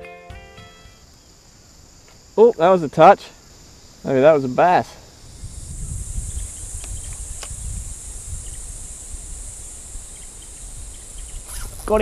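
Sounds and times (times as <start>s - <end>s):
high-pitched insect chorus: 0.4s - 12.0s.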